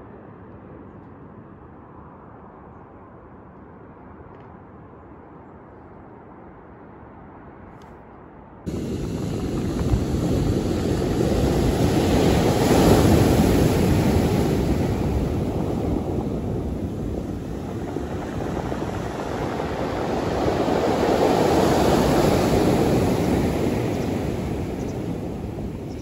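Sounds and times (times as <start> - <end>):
wind rumble on microphone: 0.0 - 26.0
surf breaking on pebbles: 8.7 - 25.8.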